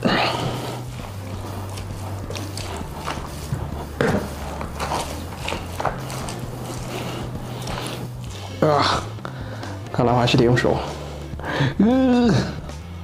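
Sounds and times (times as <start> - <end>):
wet rustling and scraping: 0.0 - 11.5
spoon stirring wet food: 0.4 - 9.8.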